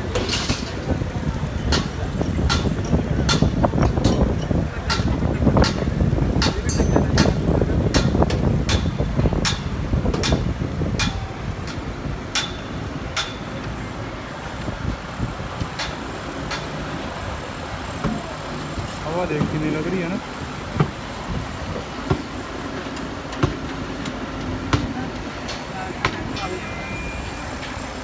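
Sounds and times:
low machinery rumble: 0.0 - 28.0
hammering: 4.9 - 13.6, 22.0 - 26.6.

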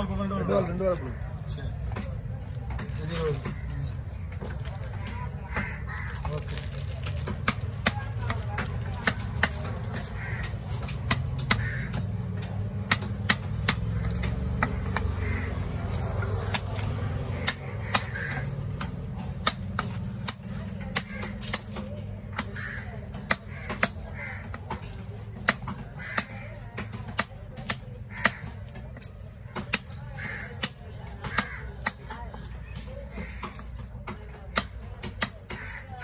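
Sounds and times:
murmur of voices: 0.0 - 36.0
crows cawing: 0.7 - 36.0
knife chopping on wooden block: 7.2 - 15.2, 16.4 - 35.8.

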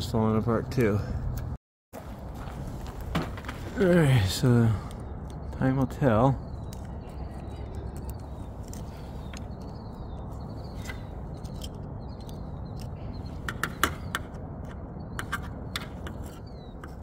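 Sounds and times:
pick tool scraping and clicking metal: 10.7 - 17.0.

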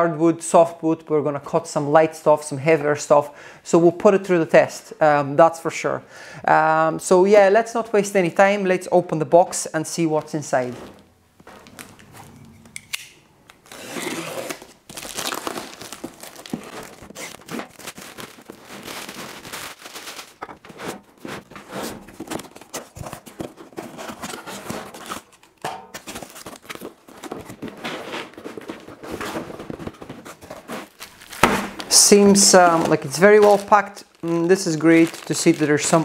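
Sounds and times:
cardboard rustling and scraping: 9.5 - 12.8, 13.6 - 36.0
cardboard box being unpacked: 13.6 - 36.0.

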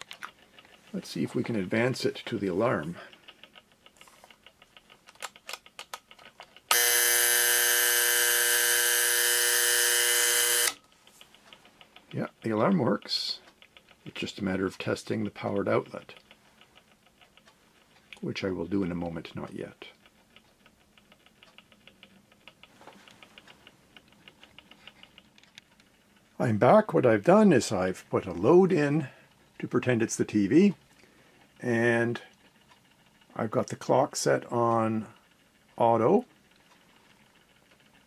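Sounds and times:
clock winding clicks: 0.0 - 38.0
faint motor hum: 6.6 - 38.0
alarm buzzer: 6.7 - 10.8.

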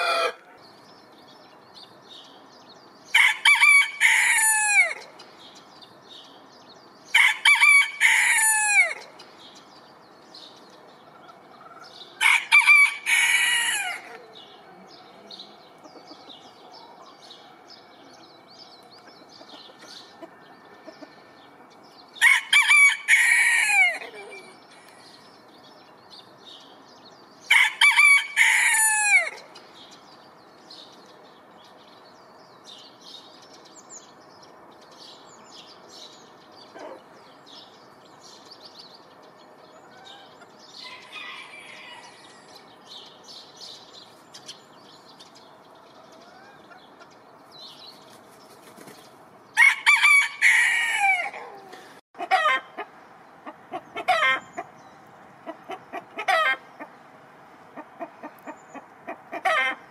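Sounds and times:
rooster crowing: 0.0 - 0.5, 3.2 - 5.1, 7.2 - 9.1, 12.2 - 14.2, 22.2 - 24.5, 27.5 - 29.4, 40.8 - 42.5, 49.6 - 52.8
faint small birds chirping: 29.4 - 49.4.

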